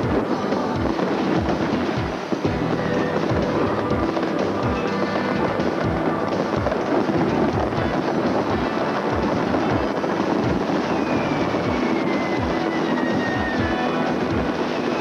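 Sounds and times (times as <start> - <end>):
fireworks crackling and bursting: 0.0 - 15.0
music with low beat: 0.0 - 15.0
falling whistling tone: 10.6 - 15.0.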